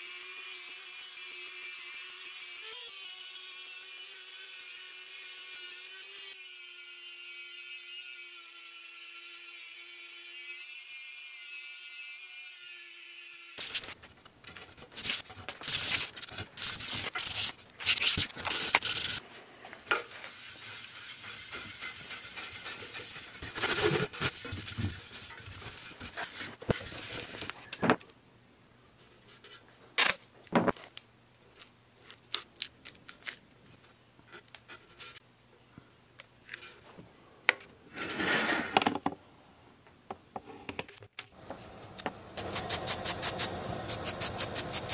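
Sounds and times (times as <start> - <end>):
paper and tape rustling: 13.6 - 19.2, 21.5 - 27.9
hand scrubbing on copper: 20.2 - 26.6.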